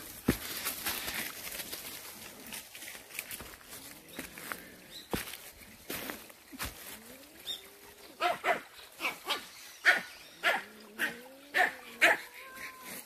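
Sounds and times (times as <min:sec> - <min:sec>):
dog barking: 0:08.2 - 0:12.3.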